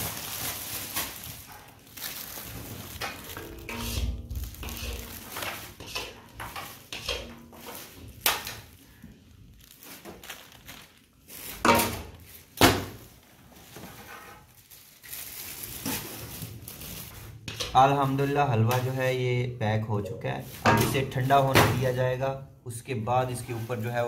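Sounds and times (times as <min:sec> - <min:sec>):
plastic bags rustling: 0:00.0 - 0:19.3, 0:20.2 - 0:24.0.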